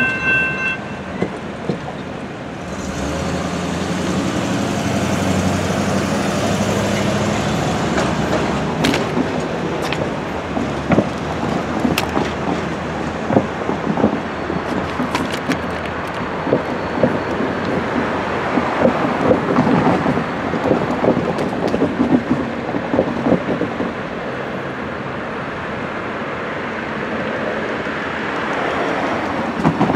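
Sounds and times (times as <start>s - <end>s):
wind noise on microphone: 3.8s - 25.1s
freight train wheels clattering: 5.2s - 24.2s.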